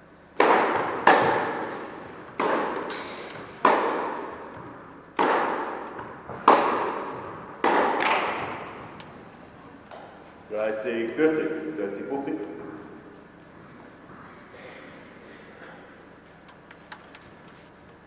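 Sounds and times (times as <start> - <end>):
tennis ball hitting rackets: 0.4 - 10.2.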